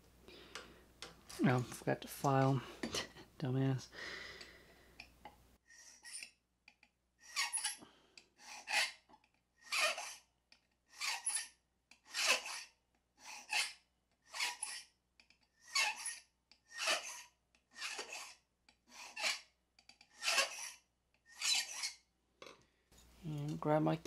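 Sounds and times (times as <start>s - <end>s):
hand file rasping on key: 8.5s - 10.2s, 12.1s - 12.7s, 13.3s - 14.9s, 15.6s - 22.0s.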